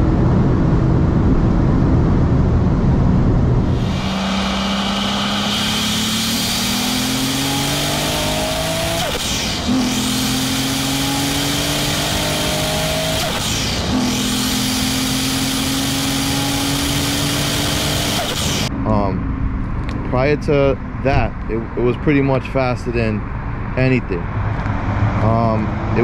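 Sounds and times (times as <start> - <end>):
wind and road noise: 0.0 - 26.0
car engine accelerating: 2.0 - 26.0.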